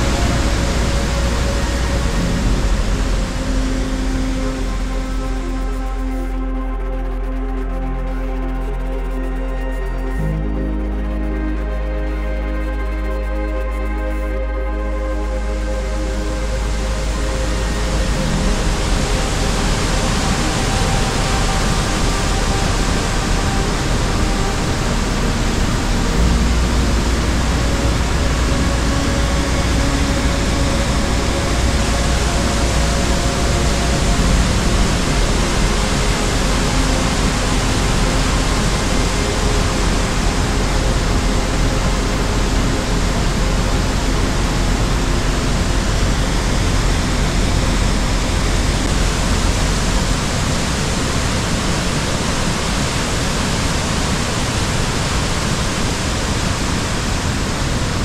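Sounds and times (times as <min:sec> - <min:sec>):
loud rushing noise: 0:00.0 - 0:05.5, 0:16.0 - 0:58.0
deep rumble: 0:00.0 - 0:58.0.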